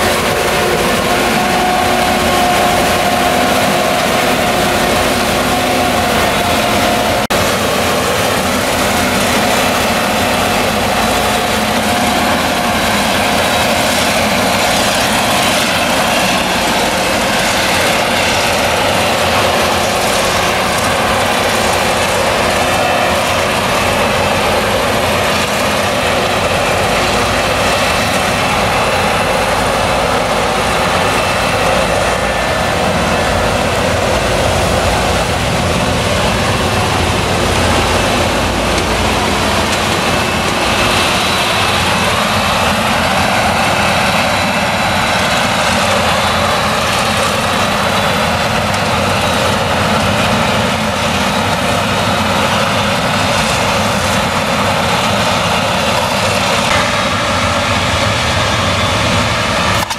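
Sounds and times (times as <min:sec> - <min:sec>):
forage harvester engine drone: 0:00.0 - 0:59.9
tractor engine running: 0:00.0 - 0:59.9.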